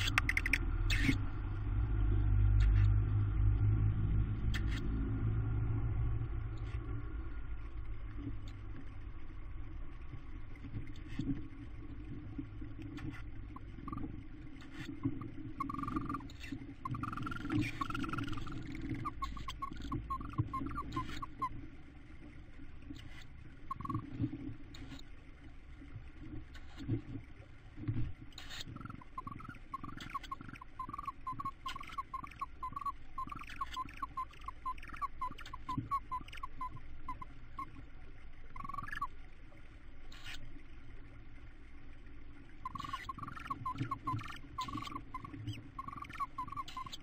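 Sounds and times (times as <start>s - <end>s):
owls high-pitched calls: 0.0s - 1.2s, 13.6s - 21.6s, 23.0s - 24.0s, 28.4s - 37.8s, 38.6s - 39.1s, 40.1s - 40.4s, 42.6s - 47.0s
low rumble: 0.0s - 21.4s.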